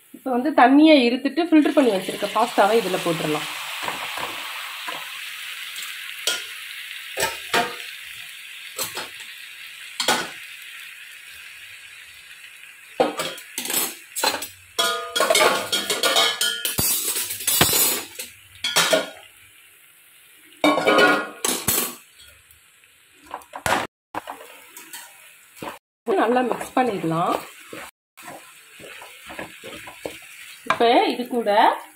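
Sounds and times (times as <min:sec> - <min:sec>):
oil sizzling: 0:00.0 - 0:31.9
metal spoon scraping a pan: 0:24.2 - 0:25.8, 0:26.4 - 0:30.9.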